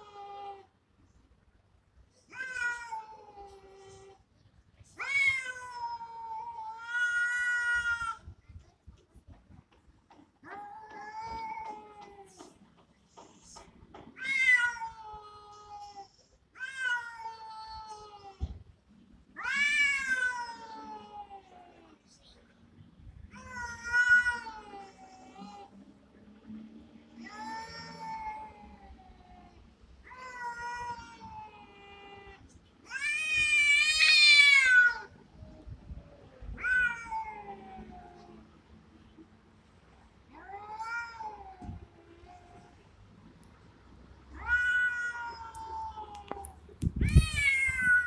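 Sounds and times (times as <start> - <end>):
cats yowling: 5.0 - 8.2, 14.2 - 16.0, 19.4 - 21.7, 23.3 - 25.7, 27.2 - 35.2, 36.5 - 38.4, 44.3 - 48.0.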